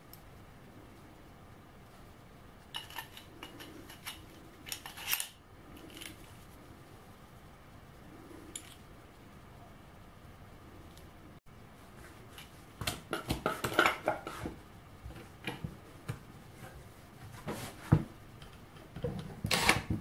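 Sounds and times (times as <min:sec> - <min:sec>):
small metal parts clicking: 0:02.7 - 0:06.3.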